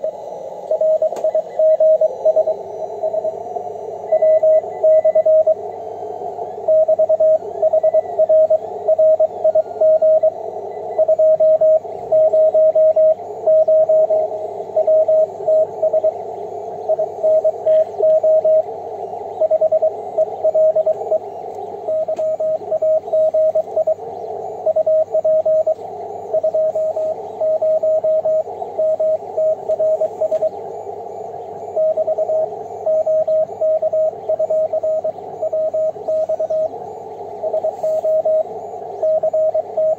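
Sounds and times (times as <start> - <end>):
morse code beeps: 0.0 - 39.9
receiver hiss: 0.0 - 39.9.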